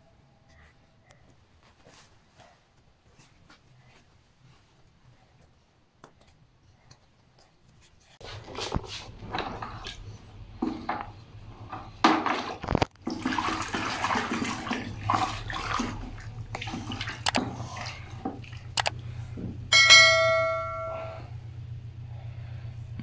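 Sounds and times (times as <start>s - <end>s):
liquid sloshing and splashing: 8.3s - 19.4s
notification bell ding: 19.7s - 21.3s.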